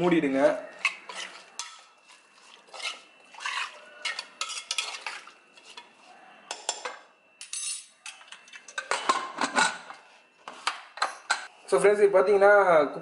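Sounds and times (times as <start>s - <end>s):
hand stirring food in metal pot: 0.2s - 6.8s.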